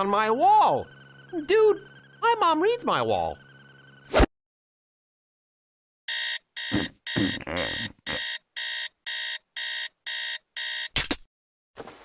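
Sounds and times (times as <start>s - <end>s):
digital alarm clock beeping: 6.1s - 11.0s.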